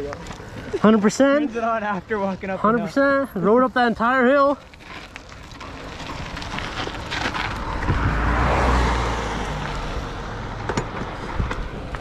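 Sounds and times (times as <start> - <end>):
bike tyre noise on dirt: 0.0 - 12.0
wind rushing over microphone: 7.5 - 12.0.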